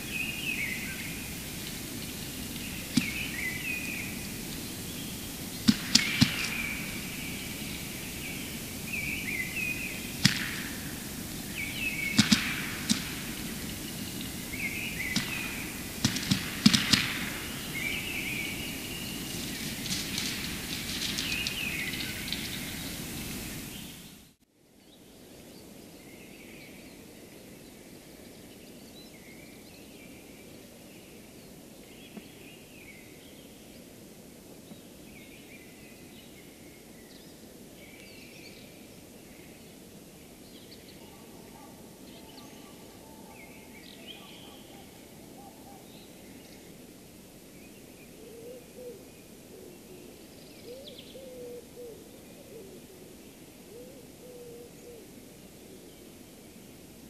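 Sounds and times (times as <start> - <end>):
faint bird calls: 0.0 - 24.2, 40.6 - 46.8, 47.6 - 56.2
bird clicks and pops: 10.1 - 10.8, 11.5 - 14.3.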